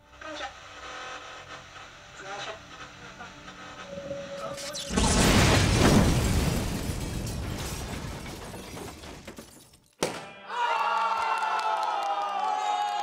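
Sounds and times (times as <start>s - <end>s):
loud crash: 4.5s - 9.5s.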